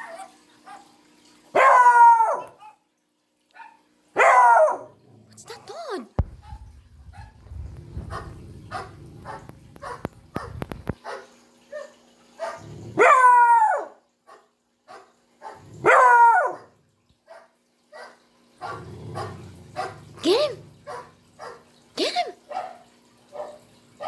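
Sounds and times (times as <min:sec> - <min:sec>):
puppy howling: 0:01.6 - 0:02.6, 0:13.0 - 0:14.0, 0:15.8 - 0:16.7.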